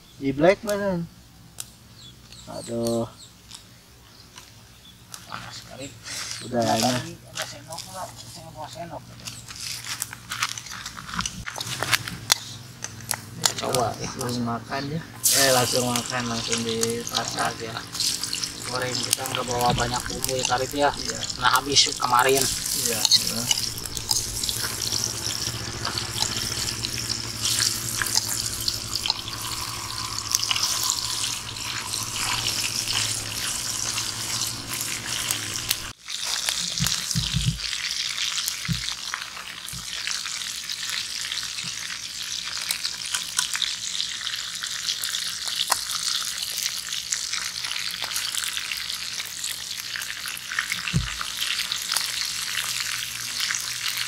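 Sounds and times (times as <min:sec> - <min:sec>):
fish frying in hot oil: 0:15.2 - 0:54.0.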